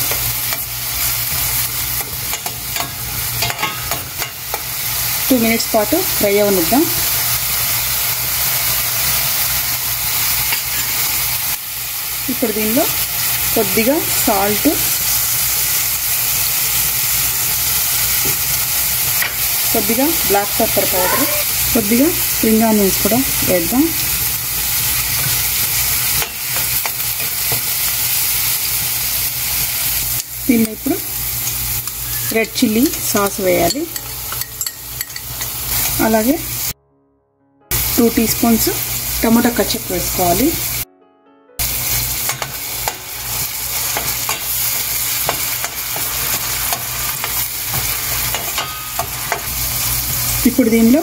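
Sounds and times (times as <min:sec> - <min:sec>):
vegetables sizzling in oil: 0:00.0 - 0:36.8, 0:37.7 - 0:40.9, 0:41.6 - 0:51.0
metal spoon tapping pan: 0:02.0 - 0:04.7, 0:32.8 - 0:35.6, 0:45.2 - 0:49.5.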